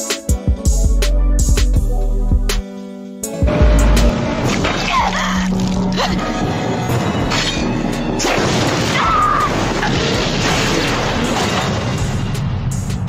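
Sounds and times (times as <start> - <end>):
soundtrack music: 0.0 - 13.0
booming and crashing effects: 3.5 - 13.0.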